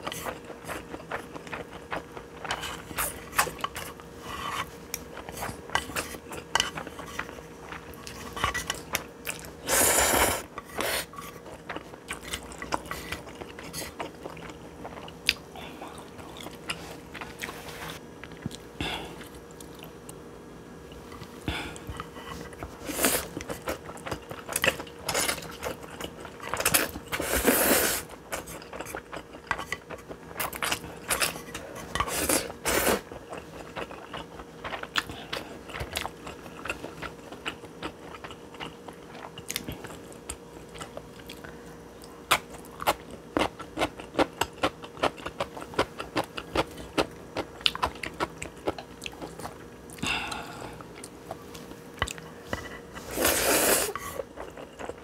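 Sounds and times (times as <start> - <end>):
slurping noodles: 9.6 - 11.1, 27.1 - 28.1, 53.0 - 54.2
chewing with wet mouth clicks: 33.2 - 50.0, 50.9 - 52.6.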